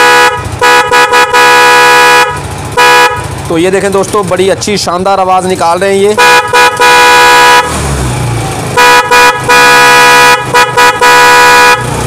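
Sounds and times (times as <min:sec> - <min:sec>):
motorcycle horns tooting: 0:00.0 - 0:03.5, 0:06.0 - 0:07.9, 0:08.7 - 0:12.0
engine idling: 0:00.0 - 0:12.0.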